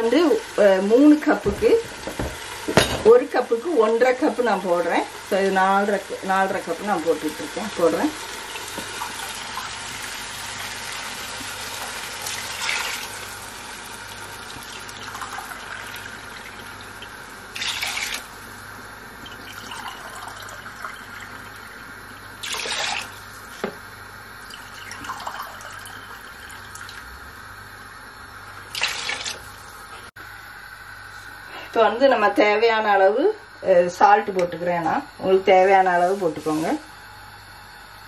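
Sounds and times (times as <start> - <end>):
water pouring into pot: 3.9 - 18.4, 19.2 - 23.6, 24.4 - 27.0, 28.7 - 29.5.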